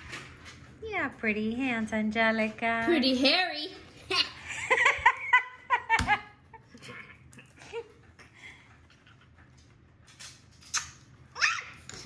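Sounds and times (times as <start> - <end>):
woman laughing: 4.1 - 8.0.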